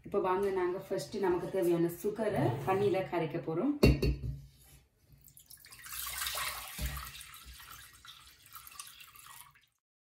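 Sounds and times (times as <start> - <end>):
water pouring into a pot: 5.2 - 9.8.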